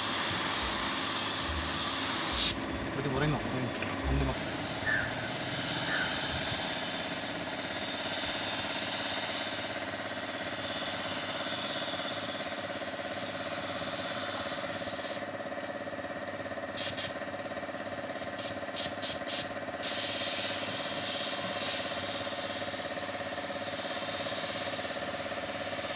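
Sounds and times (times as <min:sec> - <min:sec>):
paint spray gun hissing: 0:00.0 - 0:02.6, 0:04.4 - 0:15.3, 0:16.7 - 0:17.3, 0:18.1 - 0:25.9
motor hum: 0:00.0 - 0:19.8.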